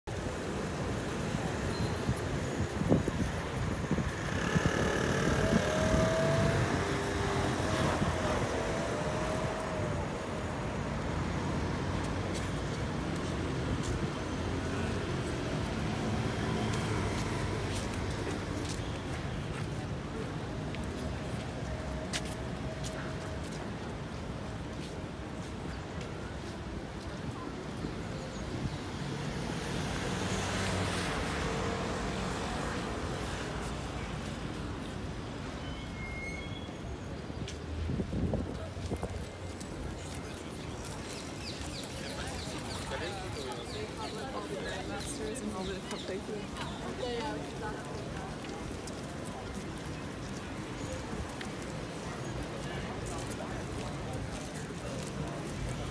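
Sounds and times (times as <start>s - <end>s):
city street traffic: 0.0s - 55.9s
motor vehicle passing: 4.1s - 9.6s.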